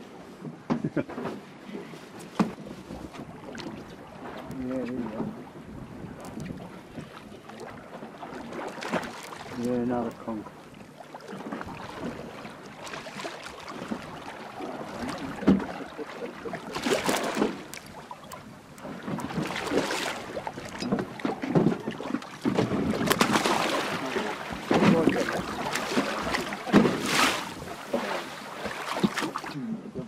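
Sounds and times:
water splashing: 2.4 - 29.7
wind buffeting microphone: 2.6 - 12.9.

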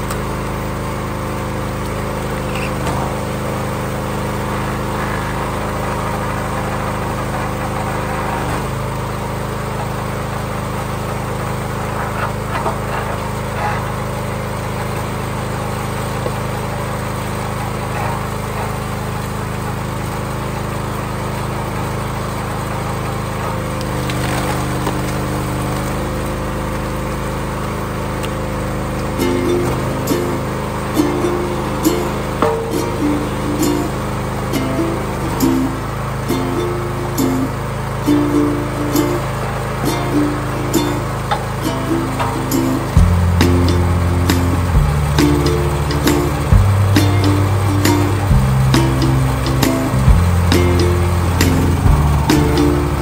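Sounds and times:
small gas engine running: 0.0 - 53.0.

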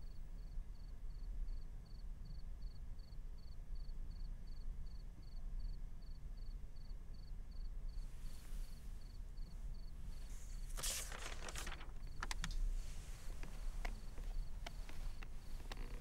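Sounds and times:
cricket chirping: 0.0 - 16.0
faint low rumble: 7.5 - 16.0
soft rush of noise: 8.0 - 16.0.

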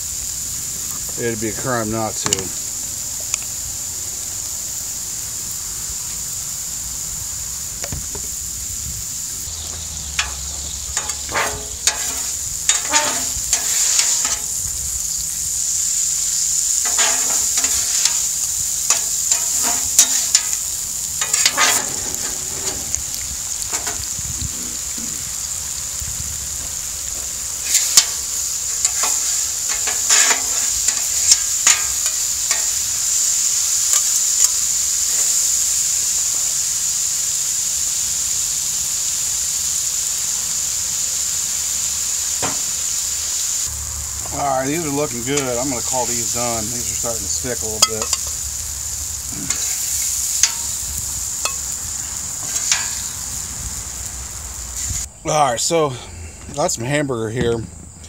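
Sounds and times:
vegetables sizzling on a griddle: 0.0 - 58.0
metal spatulas scraping steel: 10.2 - 14.6, 16.8 - 20.6, 21.2 - 24.0, 27.6 - 32.7.

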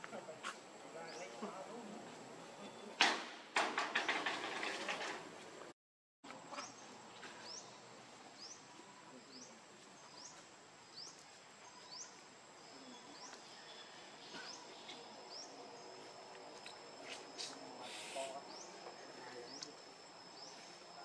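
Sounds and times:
background hiss: 6.5 - 21.0.

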